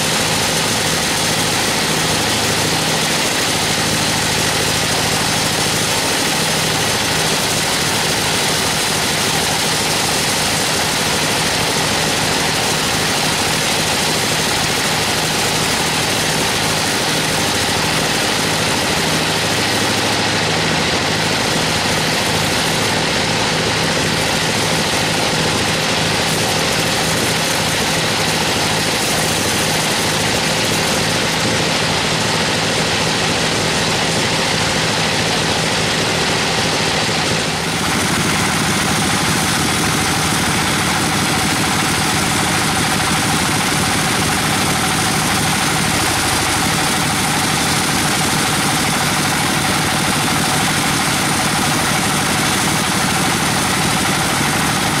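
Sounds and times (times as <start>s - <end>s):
band saw cutting a log: 0.0s - 55.0s.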